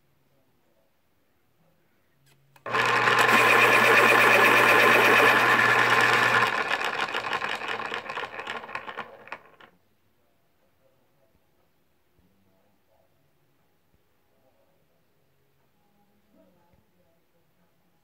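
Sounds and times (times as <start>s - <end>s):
electric pencil sharpener grinding: 2.6s - 9.7s.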